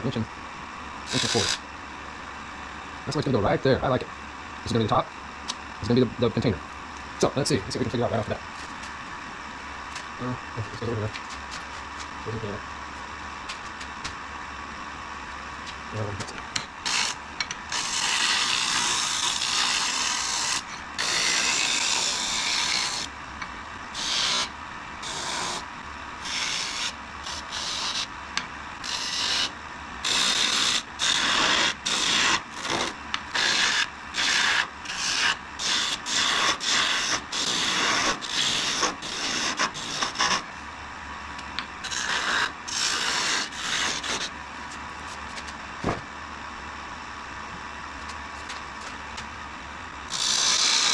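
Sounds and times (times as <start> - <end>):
lathe tool scraping wood: 1.1 - 1.6, 16.8 - 23.1, 24.0 - 25.6, 26.2 - 28.1, 28.8 - 40.5, 41.8 - 44.3
lathe humming: 16.4 - 40.7.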